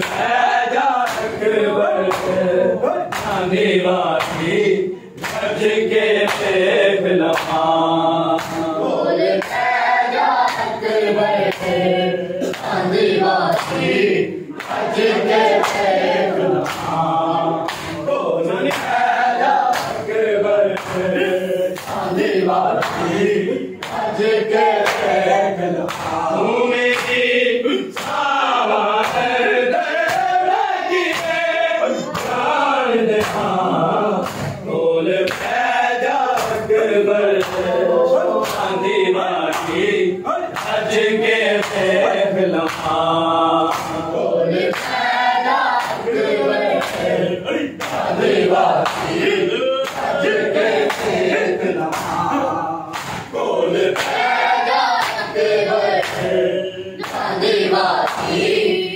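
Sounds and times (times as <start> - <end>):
men chanting in unison: 0.0 - 58.9
hands slapping chests: 1.0 - 1.4, 3.1 - 3.4, 4.2 - 4.6, 5.2 - 5.6, 6.2 - 6.6, 7.2 - 7.7, 8.3 - 8.8, 15.5 - 17.0, 17.6 - 18.0, 18.6 - 20.1, 22.7 - 23.2, 24.7 - 25.2, 25.9 - 26.3, 26.9 - 27.2, 29.0 - 30.4, 34.2 - 36.7, 37.4 - 37.8, 38.4 - 38.7, 40.5 - 40.9, 42.6 - 43.0, 43.6 - 44.0, 45.8 - 47.2, 47.8 - 56.4, 57.0 - 57.4, 58.0 - 58.5.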